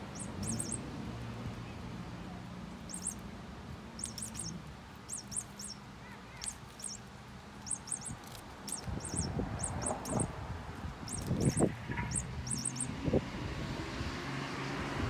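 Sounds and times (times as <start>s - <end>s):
small bird chirping: 0.0s - 0.9s, 2.7s - 3.3s, 3.9s - 10.3s, 11.0s - 13.0s.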